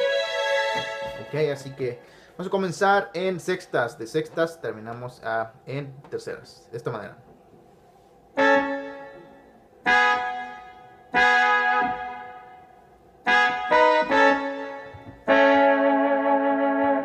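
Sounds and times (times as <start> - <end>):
keyboard brass chords: 0.0 - 2.4, 8.4 - 17.0.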